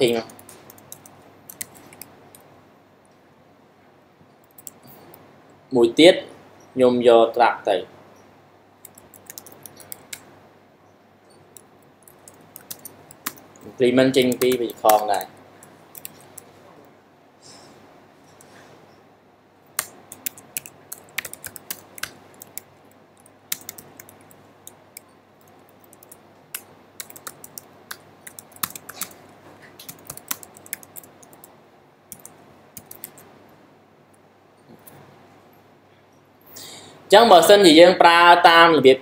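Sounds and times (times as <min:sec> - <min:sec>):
computer keyboard typing: 0:00.0 - 0:02.5, 0:04.4 - 0:05.2, 0:08.8 - 0:10.3, 0:11.5 - 0:16.5, 0:19.7 - 0:31.5, 0:32.1 - 0:33.3.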